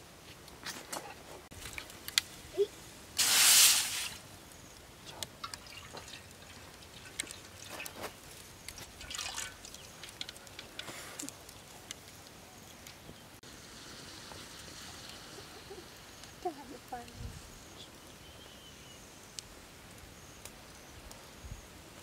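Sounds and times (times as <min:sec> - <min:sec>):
water splashing into a wok: 0:03.2 - 0:04.2, 0:05.3 - 0:10.8
water dripping: 0:04.8 - 0:13.0.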